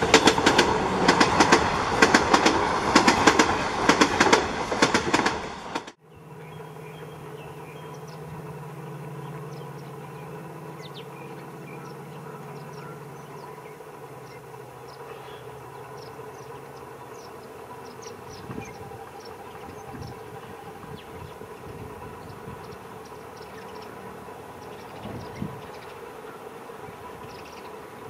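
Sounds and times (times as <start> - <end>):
diesel locomotive engine humming: 0.0 - 28.0.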